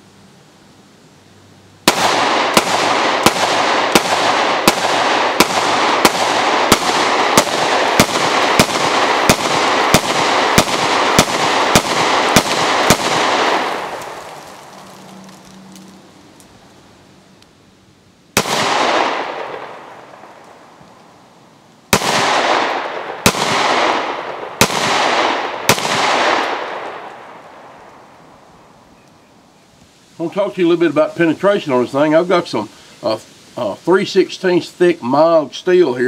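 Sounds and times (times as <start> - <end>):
pistol shots with echo: 1.9 - 14.1, 18.4 - 19.9, 21.9 - 27.2.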